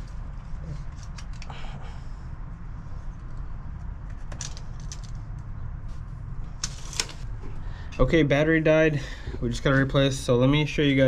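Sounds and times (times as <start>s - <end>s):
low steady rumble: 0.0s - 11.0s.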